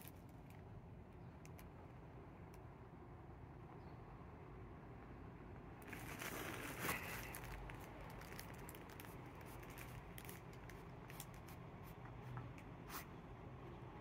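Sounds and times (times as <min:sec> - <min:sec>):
plastic bag crinkling: 0:05.9 - 0:11.6.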